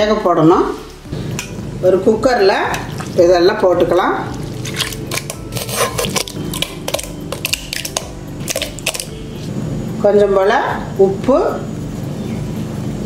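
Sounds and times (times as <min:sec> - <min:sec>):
wet meat slapping into metal pot: 0:02.7 - 0:03.2, 0:04.3 - 0:09.1.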